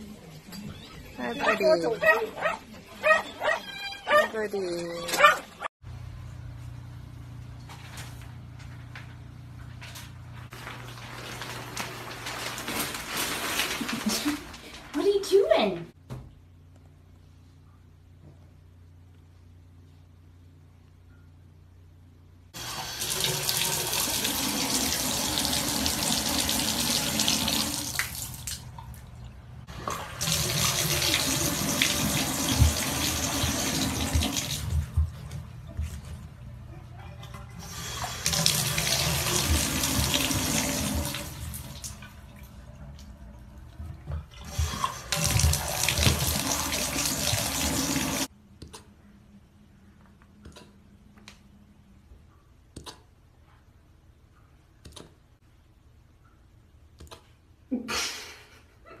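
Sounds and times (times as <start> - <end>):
tap water running into bathtub: 22.6 - 36.4, 37.2 - 48.3.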